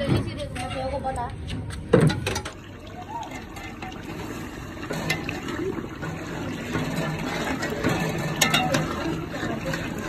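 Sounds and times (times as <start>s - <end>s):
spoon clinking against metal pot: 8.3s - 9.0s.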